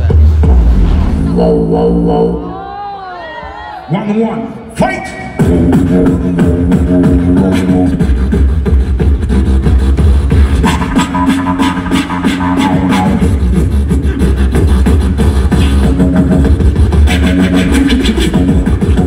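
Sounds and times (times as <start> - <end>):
beatboxing: 4.8 - 19.0.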